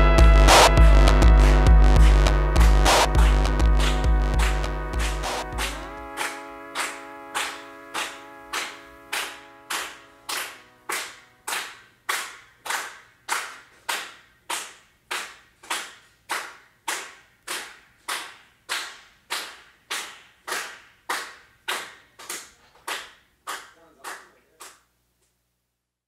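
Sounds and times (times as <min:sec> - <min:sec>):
sharp percussive hits with echo: 0:00.0 - 0:11.7.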